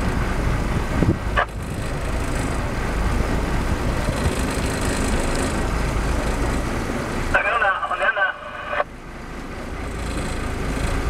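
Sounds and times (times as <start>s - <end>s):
boat engines rumbling: 0.0s - 11.0s
wind and water noise: 0.0s - 11.0s.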